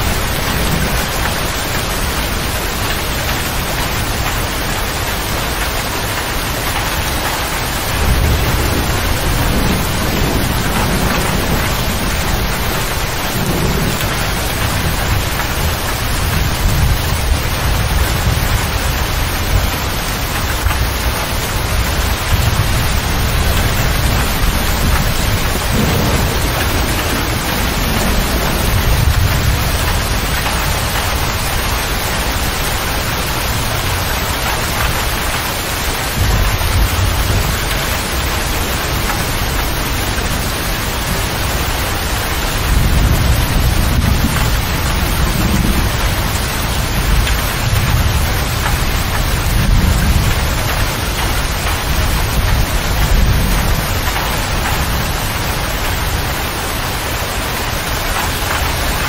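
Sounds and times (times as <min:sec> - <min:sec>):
rain on cab roof: 0:00.0 - 0:59.0
thunder rolling: 0:00.0 - 0:59.0.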